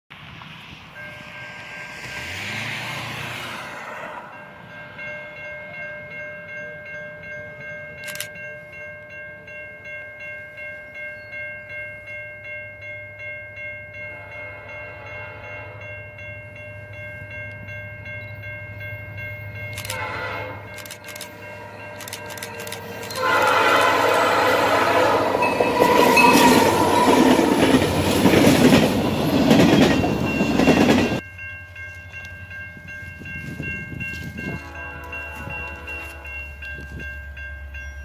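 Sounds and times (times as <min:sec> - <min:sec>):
crossing bell ringing: 0:00.7 - 0:38.0
diesel locomotive rumble: 0:14.0 - 0:38.0.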